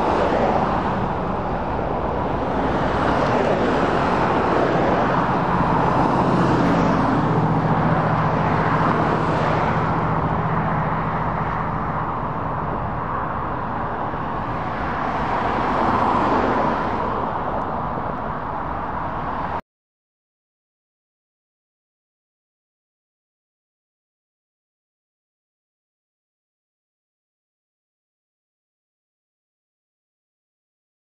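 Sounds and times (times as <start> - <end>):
low engine hum: 0.0 - 19.6
passing traffic: 0.0 - 19.6.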